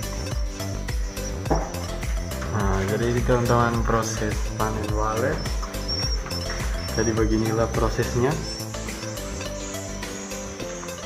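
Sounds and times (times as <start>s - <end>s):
background music with held notes: 0.0s - 11.0s
faint high chirping: 0.0s - 11.0s.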